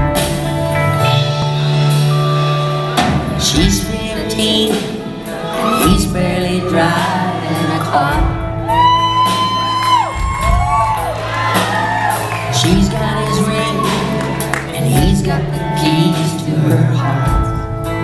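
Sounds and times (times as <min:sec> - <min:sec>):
live country band playing: 0:00.0 - 0:18.0
audience shouts and whoops: 0:06.7 - 0:14.8.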